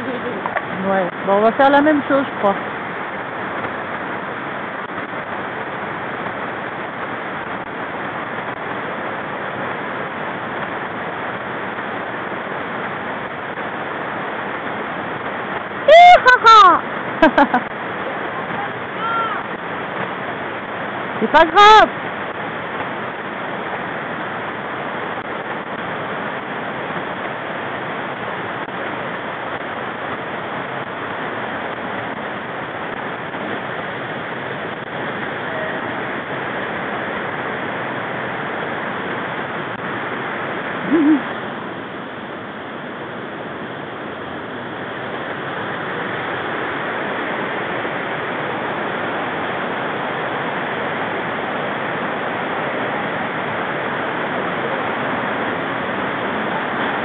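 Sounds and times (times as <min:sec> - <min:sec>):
mountain stream rushing: 0:00.0 - 0:57.0
low hoot-like sound: 0:40.8 - 0:41.4.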